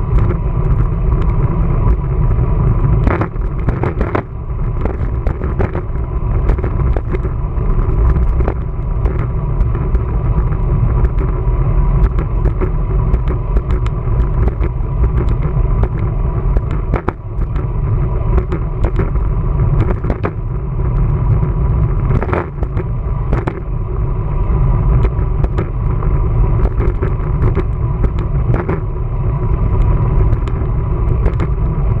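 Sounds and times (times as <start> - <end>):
wind buffeting microphone: 0.0 - 32.0
bike knocks and rattles: 12.0 - 17.7, 18.3 - 23.7, 25.0 - 29.0, 29.6 - 32.0.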